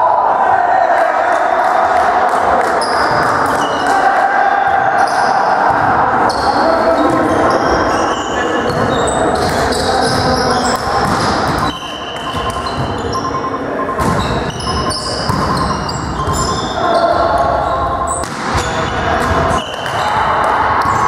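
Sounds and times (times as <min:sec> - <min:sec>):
players' voices: 0:00.0 - 0:21.0
sneakers squeaking on court floor: 0:05.0 - 0:21.0.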